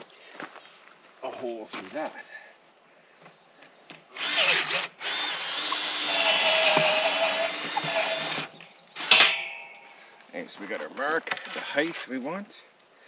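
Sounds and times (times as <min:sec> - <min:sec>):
cordless drill boring into wood: 0:04.1 - 0:09.2.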